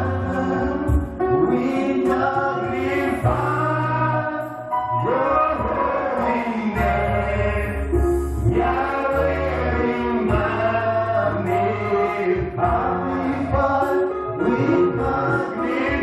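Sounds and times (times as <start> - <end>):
choir singing: 0.0 - 16.0
deep held bass notes: 5.0 - 16.0.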